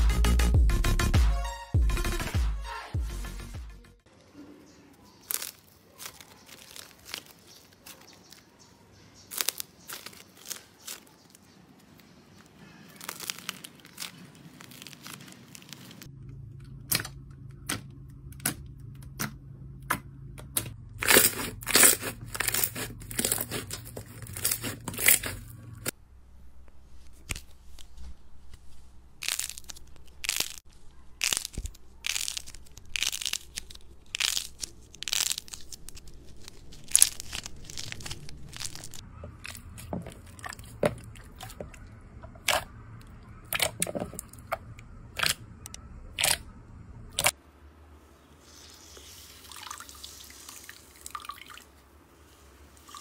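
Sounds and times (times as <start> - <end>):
slime crackling and popping: 5.2 - 8.5, 9.3 - 12.1, 12.8 - 16.1, 21.0 - 25.4, 29.2 - 41.8, 43.5 - 44.5.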